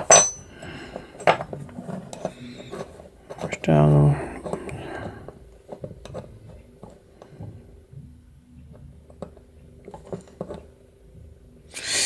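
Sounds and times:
light clicks and handling noise: 0.0 - 7.6
faint steady hum: 0.0 - 12.0.

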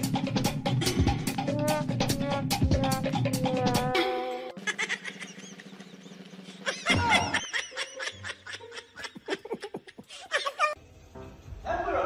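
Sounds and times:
person giggling: 4.0 - 10.8.

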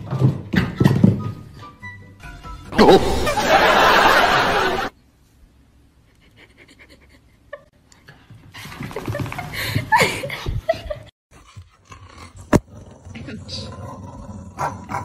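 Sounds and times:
breathy laughter: 2.8 - 4.9.

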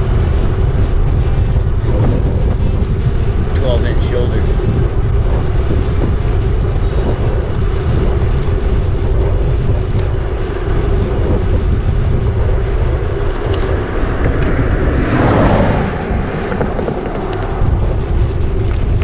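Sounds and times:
wind rumbling on microphone: 0.0 - 19.0
vehicle passing by: 12.6 - 19.0.

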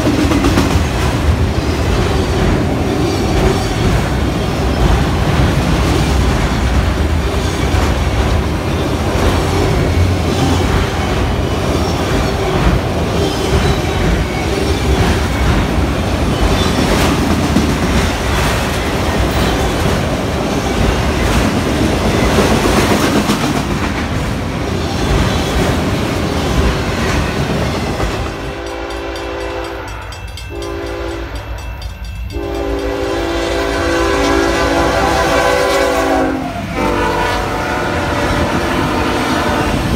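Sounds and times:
freight train rumbling and rattling: 0.0 - 39.9
locomotive horn: 28.5 - 31.6, 32.3 - 39.9.

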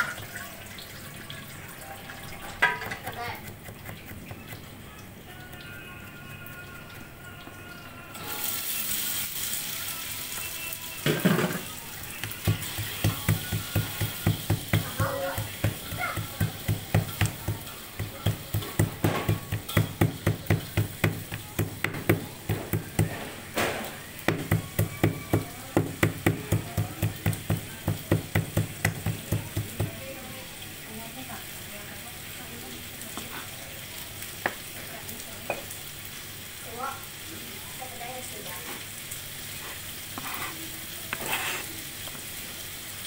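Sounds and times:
stone pestle pounding: 12.2 - 23.3, 24.3 - 30.0.

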